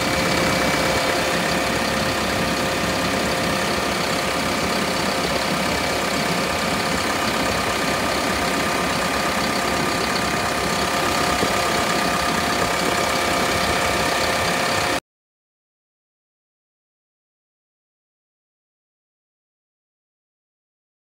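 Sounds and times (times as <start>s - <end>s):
diesel engine idling: 0.0s - 15.0s
steady whine: 0.0s - 15.0s.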